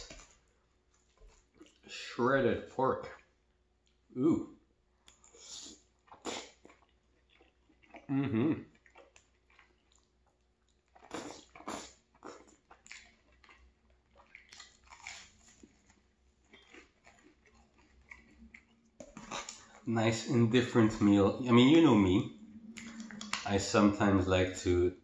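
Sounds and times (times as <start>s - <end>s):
wet chewing: 5.0s - 21.6s, 22.6s - 23.5s.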